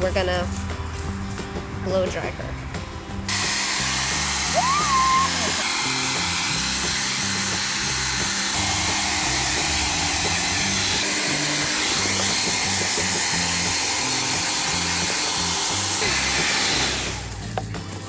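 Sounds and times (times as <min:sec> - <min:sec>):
background music: 0:00.0 - 0:18.0
hair dryer blowing: 0:03.3 - 0:17.6.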